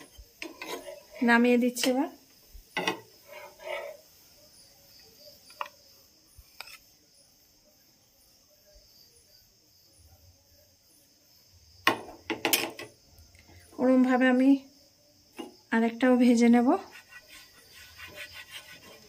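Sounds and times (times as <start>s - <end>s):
spatula scraping a pan: 0.0s - 1.9s, 2.8s - 4.1s, 6.5s - 6.9s, 16.8s - 19.0s.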